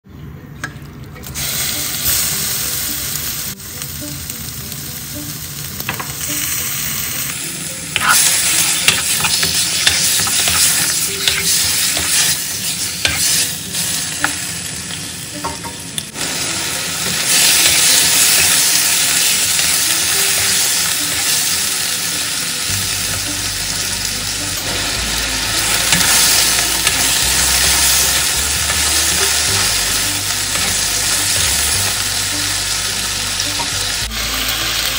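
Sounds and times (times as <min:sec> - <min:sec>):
chicken sizzling in hot oil: 0:01.4 - 0:34.9
spatula scraping and tapping pan: 0:08.0 - 0:12.4.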